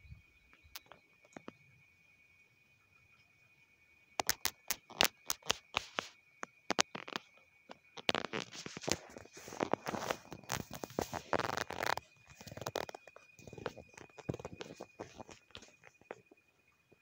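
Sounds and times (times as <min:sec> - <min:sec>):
fingers handling phone: 0:08.0 - 0:16.2.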